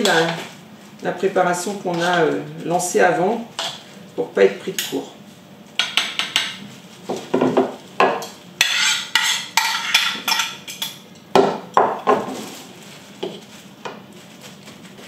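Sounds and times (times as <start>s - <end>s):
utensils knocking against dishes: 5.8s - 6.6s, 7.3s - 12.3s.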